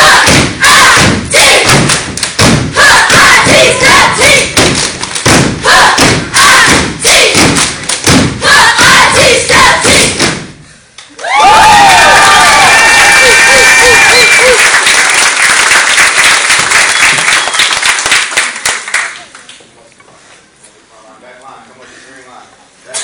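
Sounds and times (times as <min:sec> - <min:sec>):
rhythmic stomping and clapping: 0:00.0 - 0:11.0, 0:12.4 - 0:19.3
crowd cheering: 0:11.1 - 0:18.6.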